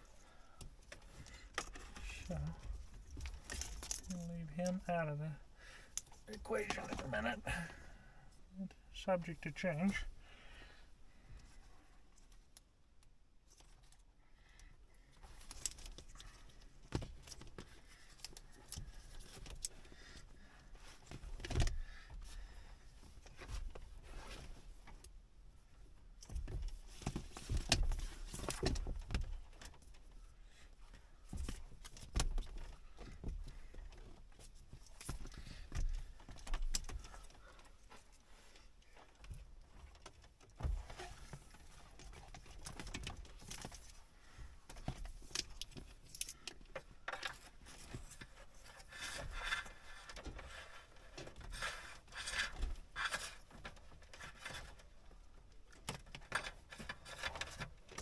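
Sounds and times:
wires rustling: 0.8 - 5.2.

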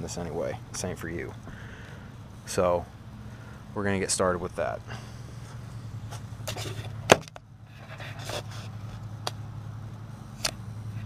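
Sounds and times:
low hum: 0.0 - 11.0
camera handling scraping: 6.1 - 9.0.

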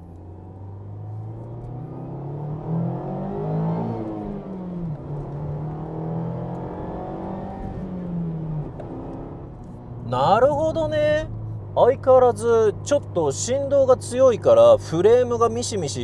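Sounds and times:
car engine revving: 0.0 - 11.8.

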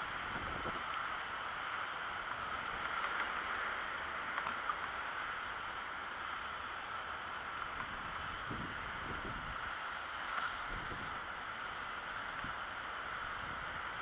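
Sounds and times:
wind on microphone: 0.0 - 1.0, 7.7 - 9.7, 10.5 - 11.4
bicycle tyre hum: 0.0 - 14.0.

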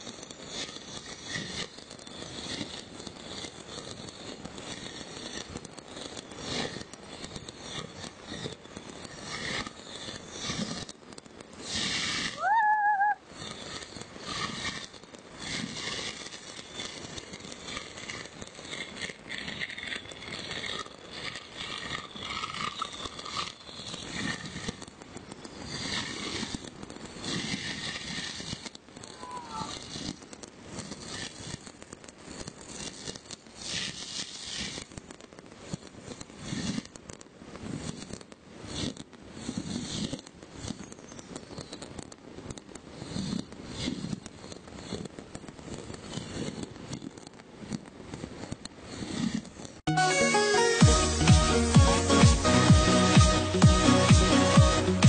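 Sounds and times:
fireworks crackling and popping: 0.0 - 55.0
firework whistle: 11.6 - 18.8, 25.4 - 31.5.

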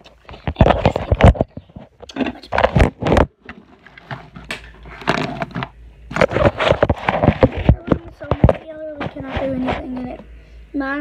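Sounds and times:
phone handling knocks and scrapes: 0.4 - 9.9.

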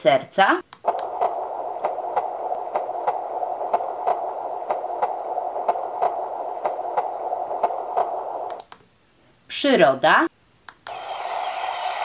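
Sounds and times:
steady background noise: 0.0 - 9.5
heartbeat through small speaker: 0.9 - 8.5.

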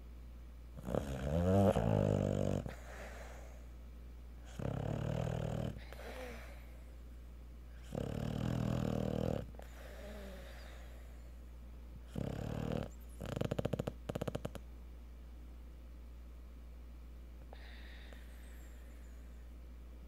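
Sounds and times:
dog snoring: 0.8 - 3.5, 4.4 - 6.6, 7.8 - 11.0, 12.0 - 14.6.

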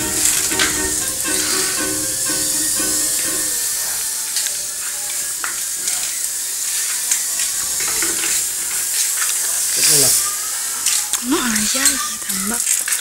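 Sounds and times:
drone propellers whining: 0.0 - 5.4.

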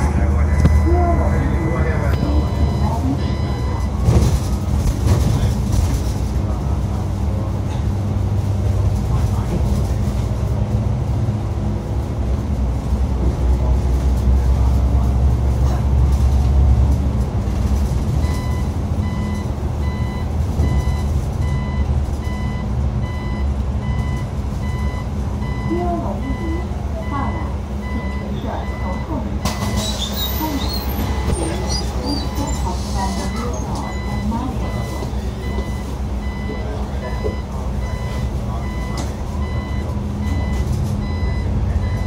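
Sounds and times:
bus engine rumble: 0.0 - 42.0
warning beeper short high beeps: 0.5 - 4.0.

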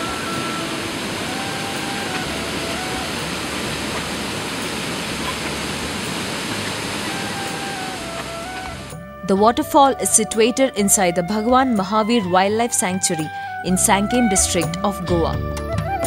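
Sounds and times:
waterfall rushing: 0.0 - 9.0
faint held music notes: 0.0 - 16.0.

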